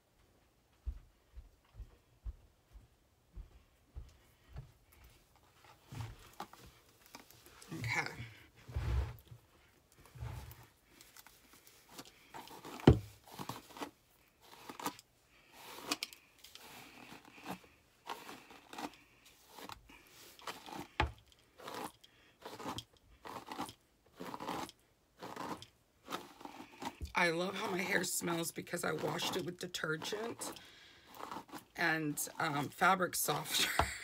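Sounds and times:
brush raking through wig: 10.0s - 33.7s.

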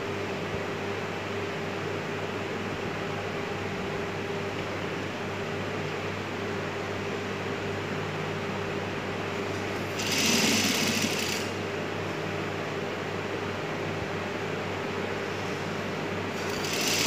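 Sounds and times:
steady background hum: 0.0s - 17.0s
sewing machine stitching: 9.9s - 11.6s, 16.4s - 17.0s.

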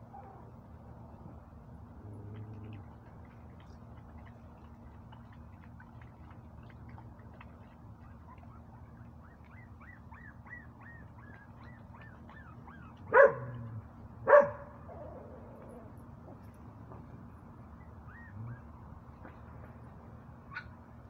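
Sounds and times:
dog barking: 13.1s - 13.6s, 14.3s - 14.8s.

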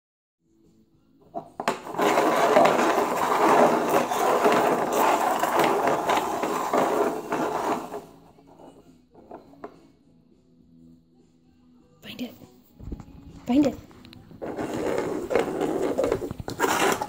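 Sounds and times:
plastic cups scraping on tiles: 1.3s - 9.8s, 14.3s - 17.0s
cups knocking: 1.4s - 8.0s.

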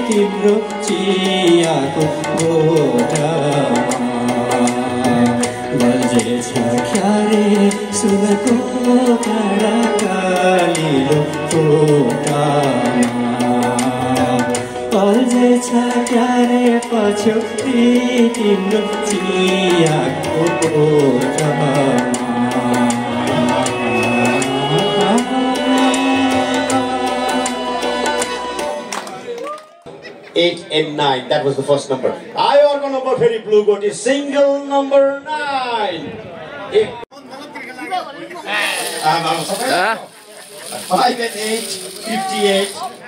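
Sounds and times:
man singing into microphone: 0.0s - 28.9s
tabla-style drum rhythm: 0.0s - 29.0s
keyboard accompaniment: 0.0s - 29.4s.

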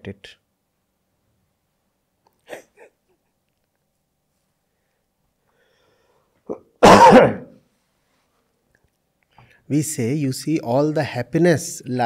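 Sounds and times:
man sneezing: 6.4s - 7.6s.

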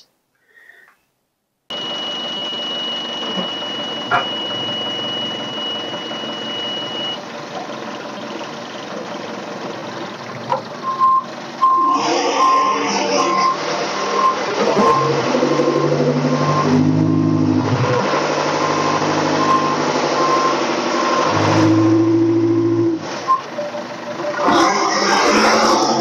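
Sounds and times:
backup alarm beeping: 1.7s - 7.2s, 10.8s - 23.5s
engine revving: 10.8s - 23.4s, 24.2s - 26.0s.

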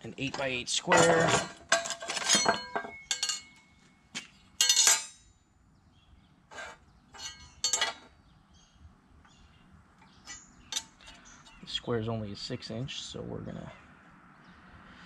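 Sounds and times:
metal square clinking on steel: 0.3s - 5.3s, 6.6s - 8.1s.

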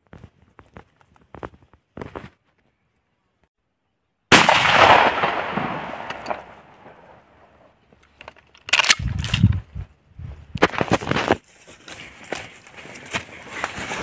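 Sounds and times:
shotgun shot echoing: 4.3s - 7.2s.

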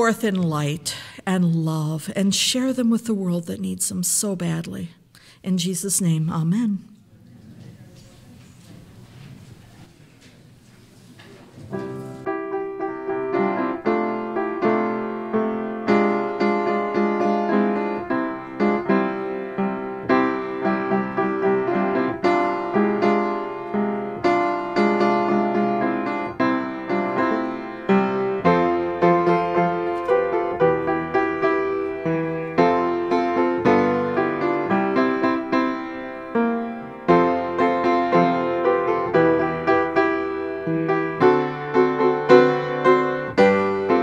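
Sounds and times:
faint background hiss: 0.0s - 12.6s
piano music: 11.7s - 44.0s.

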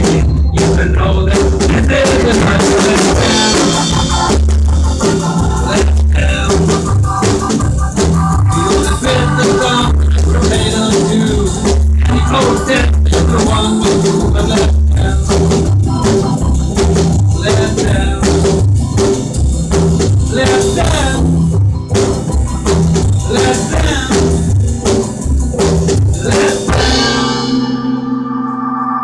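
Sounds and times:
drum beat: 0.0s - 27.8s
live band playing dance music: 0.0s - 29.0s.

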